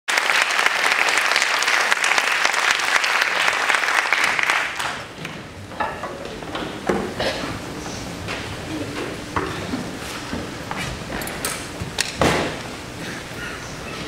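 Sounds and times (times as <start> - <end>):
audience applauding: 0.1 - 5.3
shuffling: 5.1 - 12.0.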